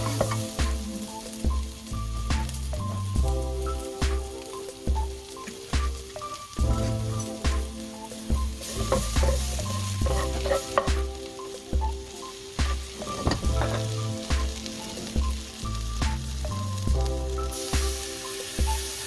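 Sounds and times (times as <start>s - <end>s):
background music with bass: 0.0s - 19.0s
vegetables sizzling in a wok: 0.0s - 19.0s
spatula scraping a pan: 8.6s - 11.0s.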